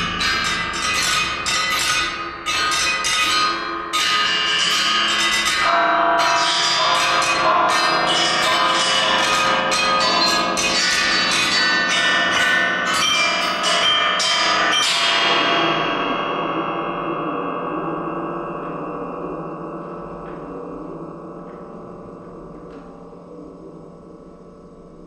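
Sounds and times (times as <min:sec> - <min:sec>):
metal percussion struck with mallets: 0:00.0 - 0:03.8.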